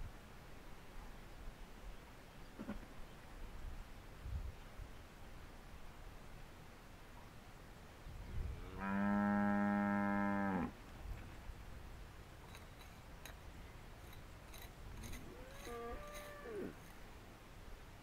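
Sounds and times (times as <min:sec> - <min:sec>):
cow mooing: 0:08.7 - 0:10.7, 0:15.2 - 0:16.8.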